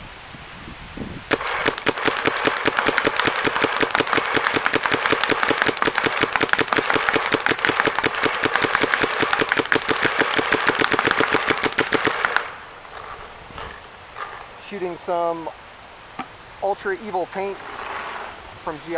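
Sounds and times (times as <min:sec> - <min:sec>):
paintball marker firing rapid shots: 0:01.3 - 0:12.6.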